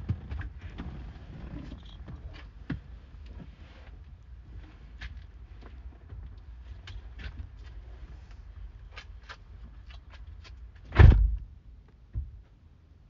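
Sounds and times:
loud thump: 0:10.9 - 0:11.4.

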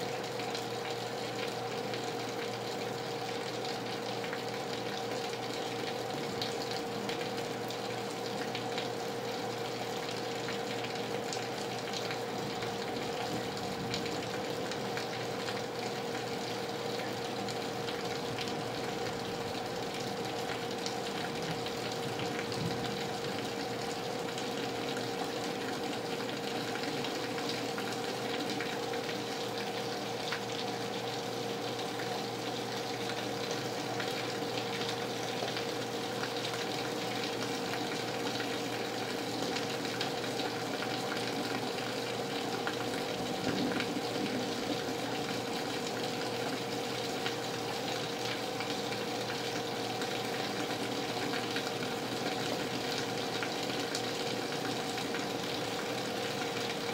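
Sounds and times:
water gushing from gutters: 0:00.0 - 0:56.9
heavy rain falling: 0:37.0 - 0:47.2.

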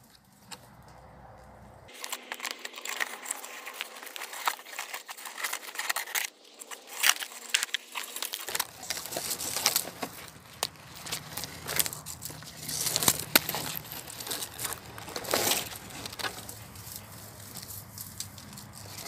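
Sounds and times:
leaves and twigs rustling: 0:00.0 - 0:19.0
twigs snapping: 0:00.0 - 0:19.0.

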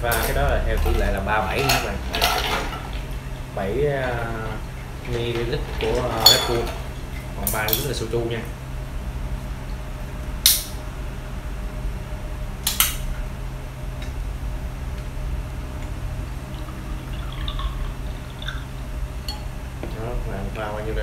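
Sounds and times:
steady low hum: 0:00.0 - 0:21.0
drink poured into glass: 0:16.4 - 0:18.8.

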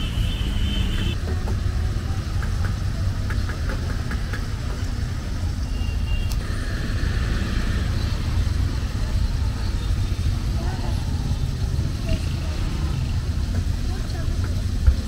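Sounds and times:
road traffic: 0:00.0 - 0:15.0.

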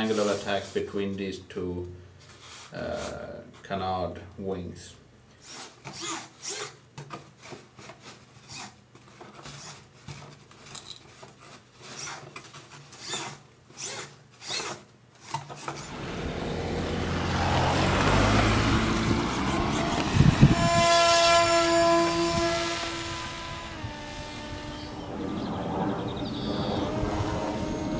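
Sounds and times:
foam model scraping and rubbing: 0:00.0 - 0:01.1, 0:02.2 - 0:03.3, 0:19.0 - 0:24.9
steady rushing noise: 0:15.8 - 0:27.9.

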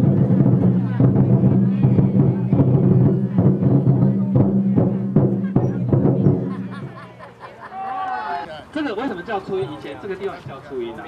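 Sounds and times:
regular drum beats: 0:00.0 - 0:07.4.

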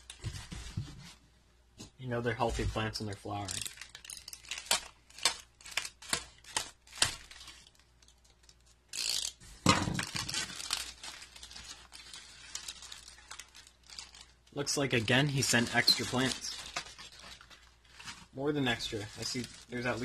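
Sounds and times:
plastic bagging crinkling: 0:03.3 - 0:09.2, 0:10.0 - 0:20.0.

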